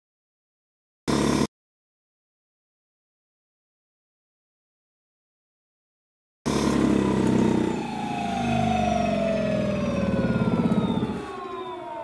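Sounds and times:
electric motor whine falling: 0:06.5 - 0:12.0
low pulsing hum: 0:06.6 - 0:12.0.

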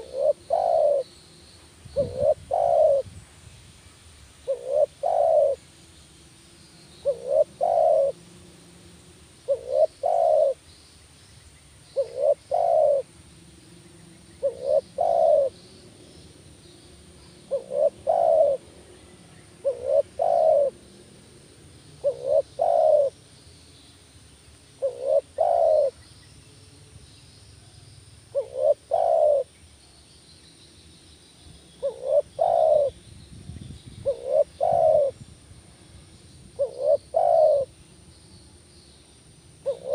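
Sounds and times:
dove cooing: 0:00.0 - 0:01.1, 0:01.9 - 0:03.1, 0:04.4 - 0:05.6, 0:07.0 - 0:08.2, 0:09.4 - 0:10.6, 0:12.0 - 0:13.1, 0:14.4 - 0:16.2, 0:17.2 - 0:21.2, 0:22.0 - 0:23.2, 0:24.8 - 0:26.0, 0:28.3 - 0:29.5, 0:31.8 - 0:33.0, 0:34.0 - 0:36.0, 0:36.6 - 0:37.8, 0:39.6 - 0:39.9.

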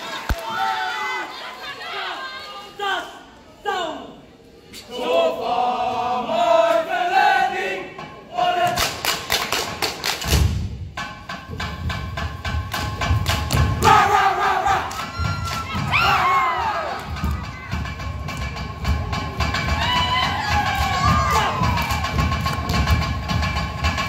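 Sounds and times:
rhythmic claps and body slaps: 0:08.6 - 0:14.0, 0:14.7 - 0:16.1, 0:16.7 - 0:24.0
group shouts: 0:13.8 - 0:17.4, 0:19.8 - 0:22.0.

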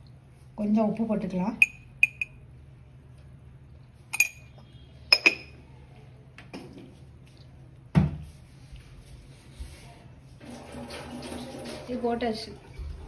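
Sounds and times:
spoon clinking against steel jar: 0:01.6 - 0:02.4, 0:04.1 - 0:04.5.

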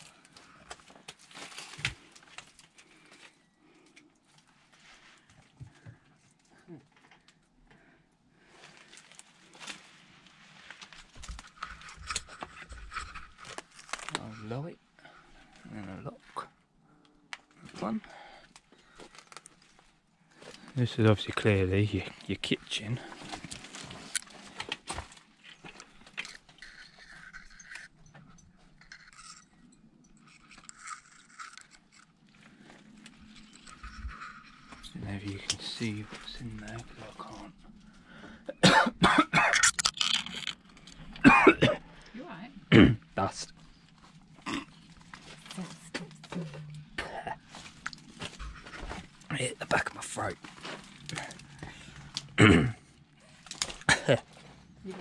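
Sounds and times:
clicks and cracks: 0:00.0 - 0:03.3, 0:10.8 - 0:14.2, 0:18.5 - 0:19.7, 0:39.6 - 0:41.2, 0:53.3 - 0:54.1
scrapes and crunches among debris: 0:00.0 - 0:07.4, 0:08.4 - 0:16.4, 0:18.5 - 0:38.2, 0:43.5 - 0:55.0
quiet rustling: 0:18.9 - 0:38.3
footsteps crunching over debris: 0:47.4 - 0:52.2.

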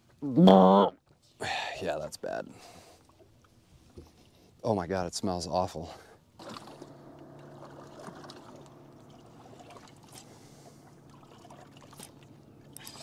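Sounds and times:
low steady hum: 0:06.0 - 0:13.0
water lapping against boat hull: 0:06.3 - 0:13.0.

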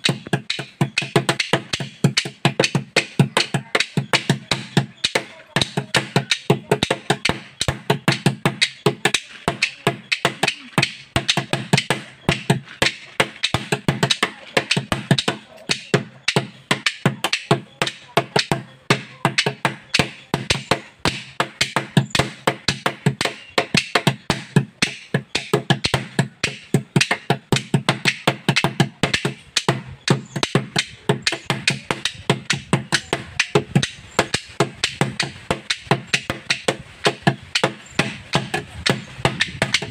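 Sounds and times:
flat hand-held pieces clapping: 0:00.0 - 0:39.9
sticks drumming on plastic can: 0:00.0 - 0:39.9.

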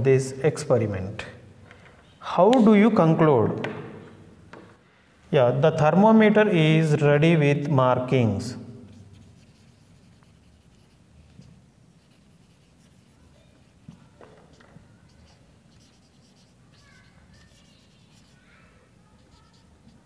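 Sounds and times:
marker squeaking on whiteboard: 0:08.8 - 0:20.0.

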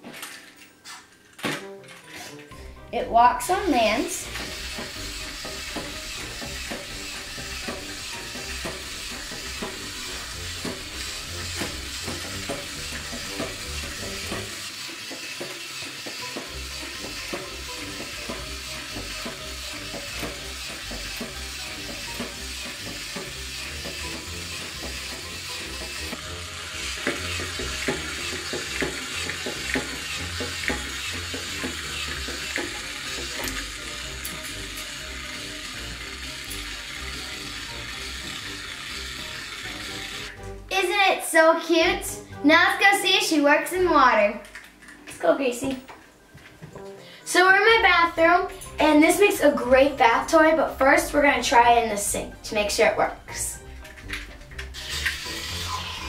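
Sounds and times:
toy motor whirring: 0:03.5 - 0:40.5, 0:51.4 - 0:56.0.

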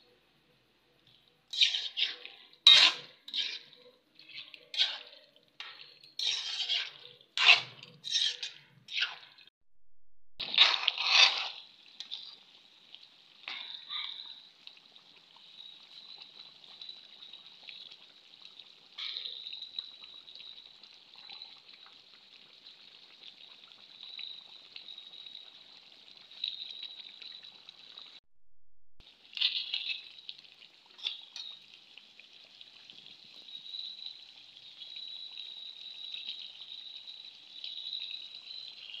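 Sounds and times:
curry bubbling in a pan: 0:00.0 - 0:09.5, 0:10.4 - 0:28.2, 0:29.0 - 0:39.0
knocks or scrapes: 0:01.5 - 0:09.2.

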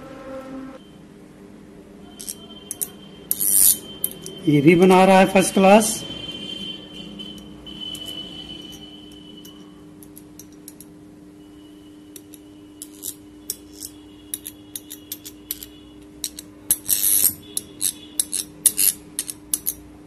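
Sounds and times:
metal tool clicking on iron: 0:02.2 - 0:04.4, 0:12.2 - 0:19.8.

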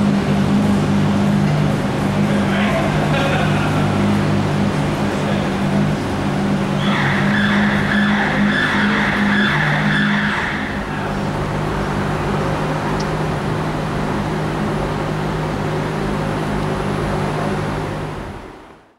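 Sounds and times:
car engine idling: 0:00.0 - 0:18.9
high squeal: 0:06.7 - 0:10.9.

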